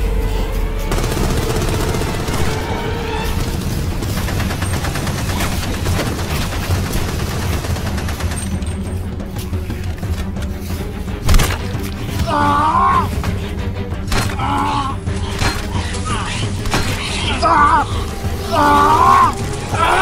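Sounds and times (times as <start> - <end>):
low music score: 0.0 - 20.0
rapid automatic gunfire: 0.9 - 8.7.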